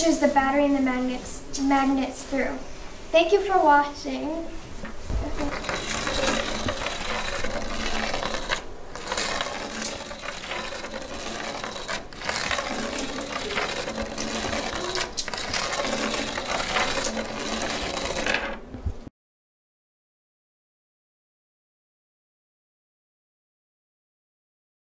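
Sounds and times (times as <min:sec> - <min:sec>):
copper wire coil jingling: 0:05.3 - 0:18.6.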